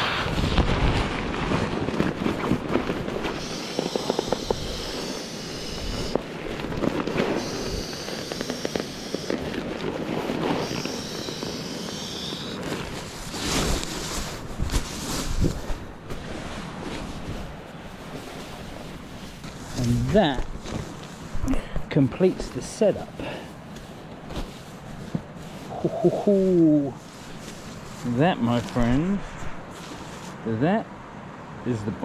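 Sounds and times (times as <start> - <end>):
air rushing: 0.0 - 16.7
nylon fabric rustling: 0.3 - 21.4, 23.5 - 25.9, 27.0 - 30.4.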